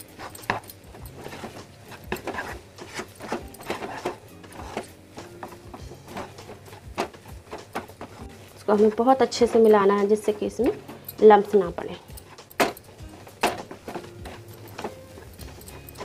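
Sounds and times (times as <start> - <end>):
wooden spatula scraping a pan: 0.0 - 11.0.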